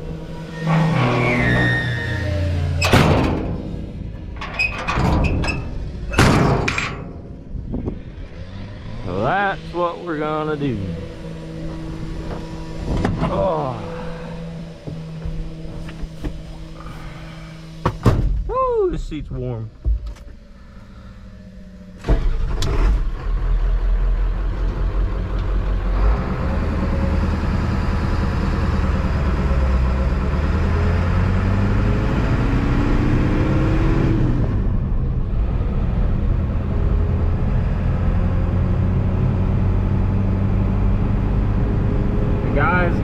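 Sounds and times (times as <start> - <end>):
truck engine starting: 0.0 - 18.4, 20.2 - 43.0
truck engine accelerating: 0.0 - 43.0.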